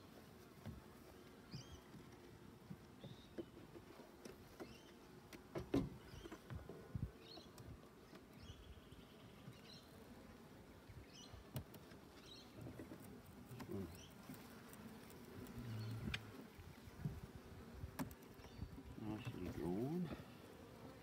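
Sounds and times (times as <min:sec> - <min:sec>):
small birds chirping: 0:01.1 - 0:02.0, 0:02.9 - 0:03.7, 0:04.5 - 0:05.1, 0:06.0 - 0:10.0, 0:10.8 - 0:17.0, 0:18.1 - 0:20.4.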